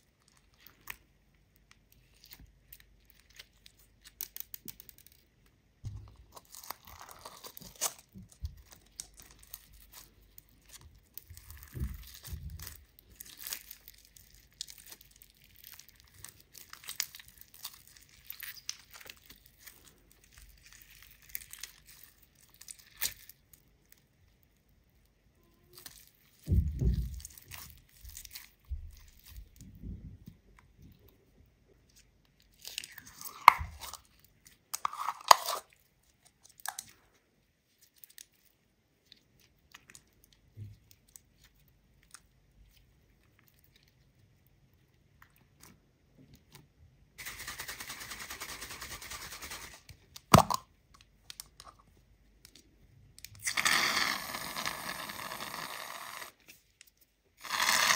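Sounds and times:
slime crackling and popping: 0.0s - 24.6s, 25.6s - 29.7s, 32.4s - 37.0s, 49.9s - 51.7s, 53.2s - 57.9s
slime squishing: 0.0s - 47.3s.

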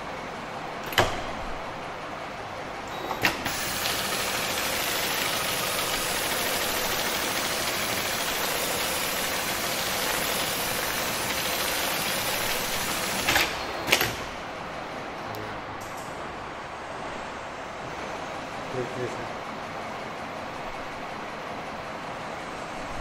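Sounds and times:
sewing machine running: 2.9s - 14.3s.

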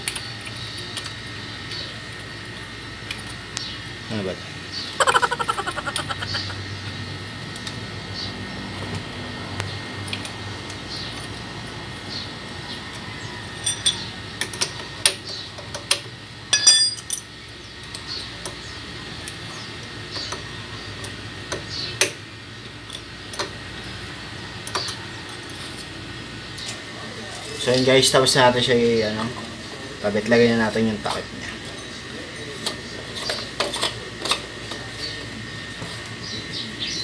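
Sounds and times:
ringing metal clink: 16.5s - 17.2s.

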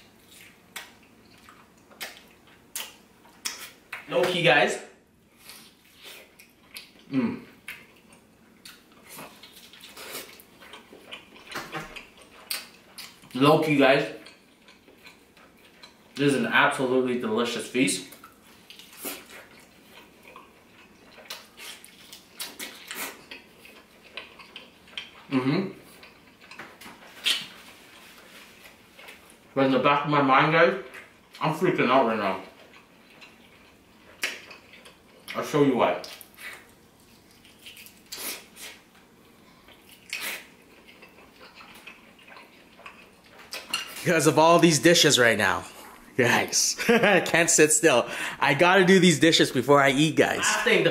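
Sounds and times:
chewing: 0.1s - 4.1s, 5.4s - 13.4s, 14.0s - 16.3s, 18.0s - 29.6s, 30.8s - 44.0s.

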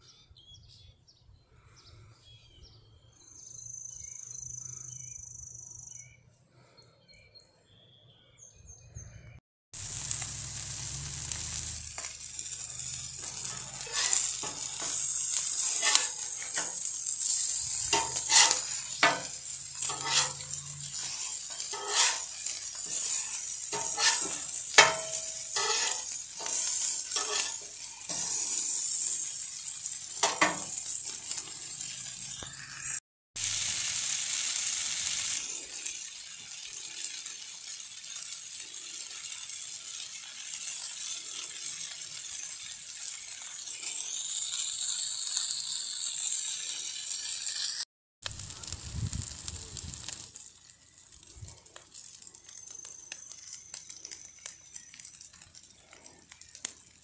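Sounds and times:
faint bird chirps: 0.0s - 9.4s
patties sizzling on griddle: 9.7s - 57.0s
metal spatula scraping steel: 11.6s - 33.0s.

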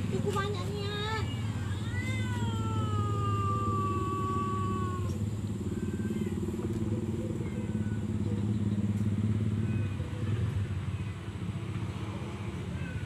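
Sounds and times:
engine rumbling: 0.0s - 13.0s
cat meowing: 1.7s - 5.1s.

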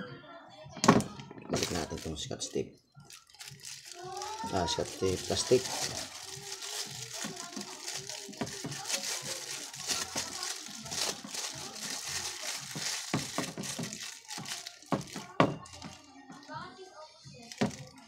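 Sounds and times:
plastic crinkling and crackling: 0.8s - 16.5s, 17.4s - 18.0s.

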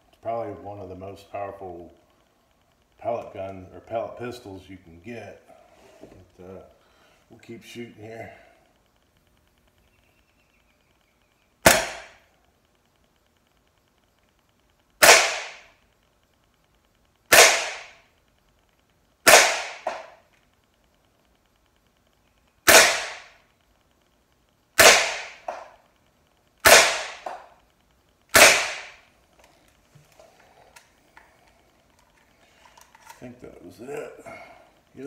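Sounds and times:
pellet pistol shots: 11.6s - 12.2s, 15.0s - 15.8s, 17.3s - 18.1s, 19.2s - 20.2s, 22.6s - 23.4s, 24.8s - 25.7s, 26.6s - 27.4s, 28.3s - 29.1s.

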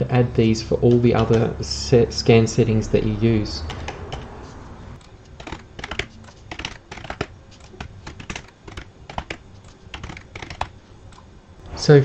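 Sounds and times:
computer keyboard typing: 3.6s - 4.4s, 5.0s - 11.3s.

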